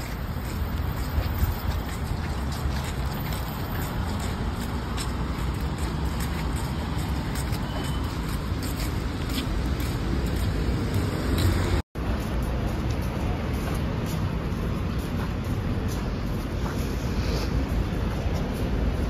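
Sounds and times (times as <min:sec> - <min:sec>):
passing cars rumbling: 0:00.6 - 0:12.6.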